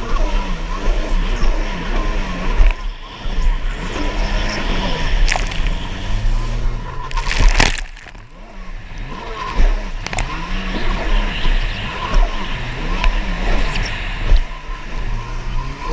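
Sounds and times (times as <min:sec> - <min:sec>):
jet ski engine revving: 0:00.0 - 0:15.9
loud splash: 0:05.3 - 0:06.1, 0:07.0 - 0:08.4.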